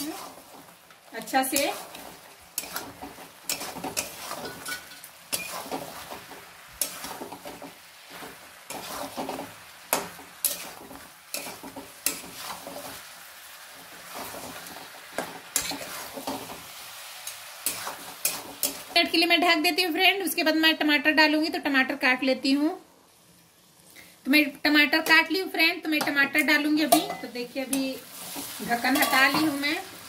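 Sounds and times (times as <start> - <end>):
metal spatula scraping a wok: 0.0 - 13.1, 13.8 - 19.0, 26.8 - 29.8
frying sizzle: 0.0 - 30.0.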